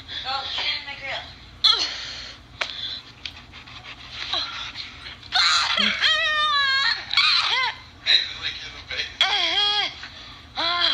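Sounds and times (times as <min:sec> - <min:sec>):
high-pitched squealing cry: 0:05.3 - 0:07.8.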